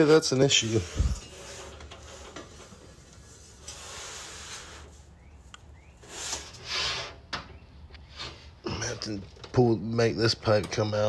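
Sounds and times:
faint rustling and clatter: 0:00.4 - 0:05.1.

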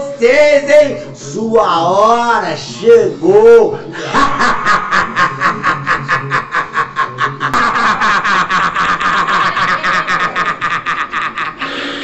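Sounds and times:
man laughing hard: 0:03.4 - 0:12.0.

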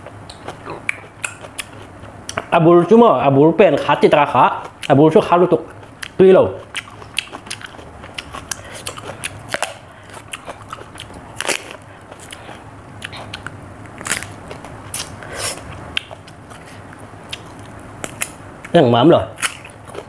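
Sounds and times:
crunching and chewing cucumber: 0:00.0 - 0:02.5, 0:04.5 - 0:20.0
skin tearing: 0:13.1 - 0:15.2, 0:19.4 - 0:19.8.

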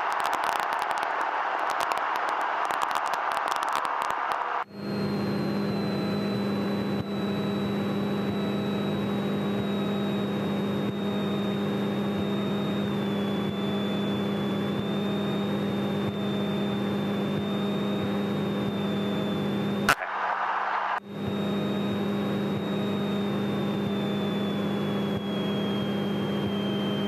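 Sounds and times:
faint high whine: 0:00.0 - 0:27.0
airplane engine and propeller droning: 0:04.8 - 0:19.9, 0:21.0 - 0:27.0.

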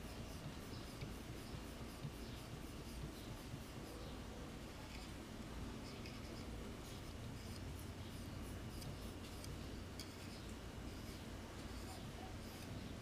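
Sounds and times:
light scratching and ticking: 0:00.0 - 0:13.0
low steady hum: 0:00.0 - 0:13.0.

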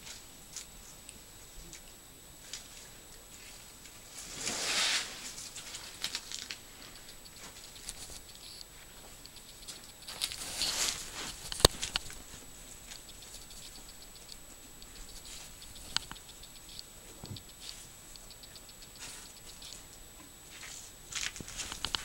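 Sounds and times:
elephant rustling: 0:04.1 - 0:08.2, 0:09.7 - 0:13.0
sharp click: 0:11.3 - 0:12.2, 0:12.9 - 0:19.8, 0:21.4 - 0:22.0.

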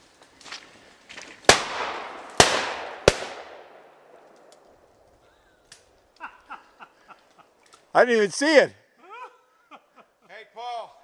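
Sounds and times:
shotgun shots echoing: 0:01.5 - 0:04.6.

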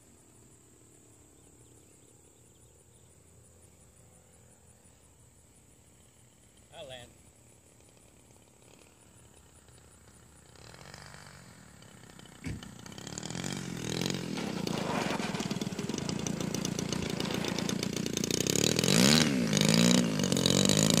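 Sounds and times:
model airplane engine running: 0:07.7 - 0:21.0
sharp knock: 0:12.4 - 0:12.7.

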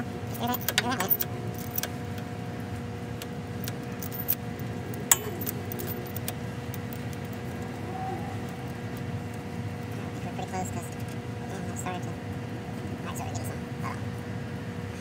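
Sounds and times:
steady low hum: 0:00.0 - 0:15.0
metallic clinks and clicks: 0:03.6 - 0:04.4, 0:05.0 - 0:07.5.

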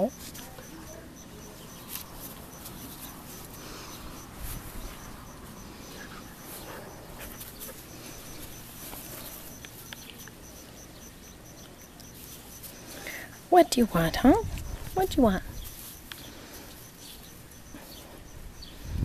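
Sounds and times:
dog rustling in grass: 0:00.2 - 0:10.4, 0:14.5 - 0:18.0.

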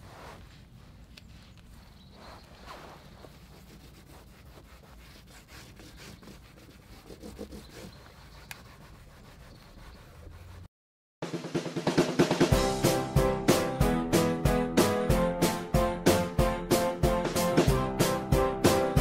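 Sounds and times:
wipe scrubbing plastic trim: 0:00.0 - 0:10.7
loud music with drums: 0:11.2 - 0:19.0.

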